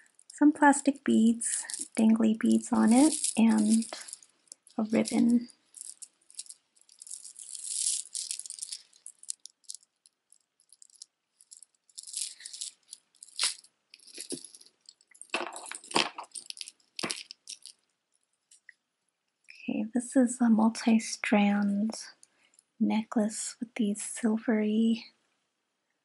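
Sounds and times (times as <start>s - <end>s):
bead necklace rattling and clinking: 0.0s - 18.7s.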